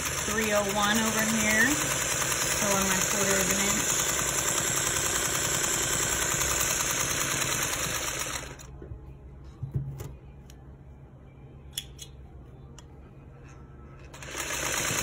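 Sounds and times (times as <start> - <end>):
sewing machine stitching: 0.0 - 8.7, 14.1 - 15.0.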